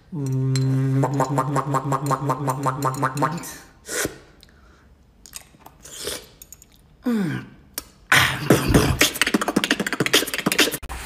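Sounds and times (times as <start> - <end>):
beatboxing: 0.0 - 4.2, 7.8 - 10.9
vocal groan falling in pitch: 0.1 - 3.5.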